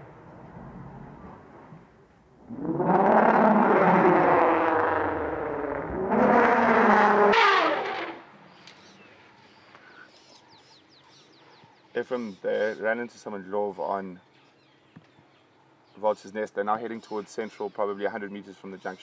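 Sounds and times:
elephants trumpeting: 2.4 - 8.3.

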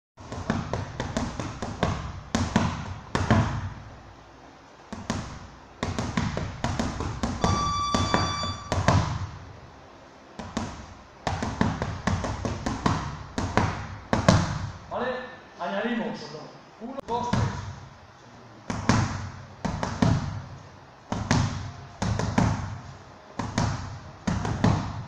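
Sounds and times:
boxing gloves striking pads: 0.2 - 3.8, 4.9 - 9.4, 10.4 - 14.8, 18.7 - 20.4, 21.1 - 25.0
steady high tone: 7.4 - 8.9.

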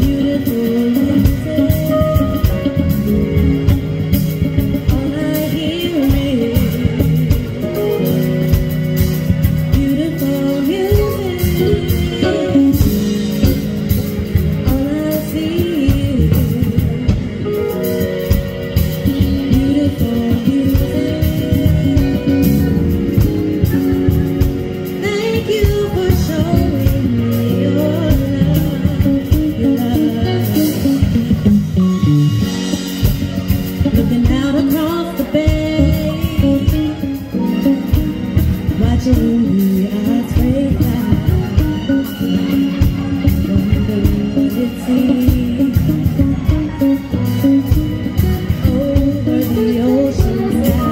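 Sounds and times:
live band playing: 0.0 - 50.9
woman singing lead: 0.0 - 50.9.

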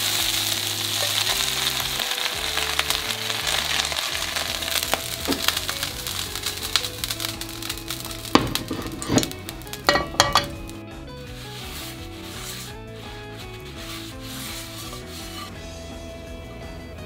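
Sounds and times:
paper towel scrubbing frying pan: 0.0 - 15.6
soft background music: 0.0 - 17.0
pan knocking on burner grate: 1.0 - 10.8.

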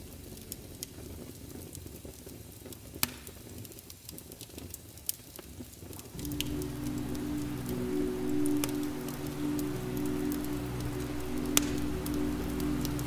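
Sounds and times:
soft low music tones: 0.0 - 2.0, 6.2 - 13.0.

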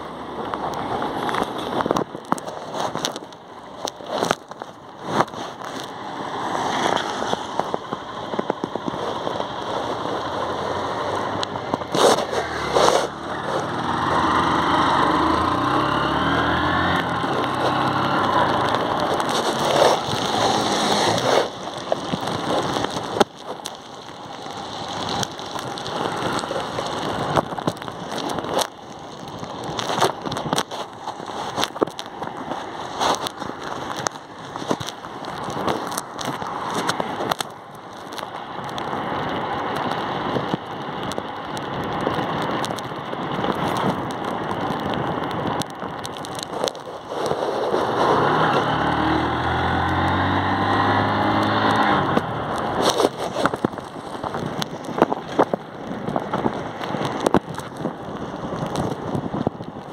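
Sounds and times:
raindrops ticking on microphone: 0.0 - 59.9
motorcycle engine: 5.7 - 28.2
tyre hiss on wet road: 5.8 - 8.0, 9.1 - 37.9, 41.9 - 59.5
wind on microphone: 50.7 - 59.9.

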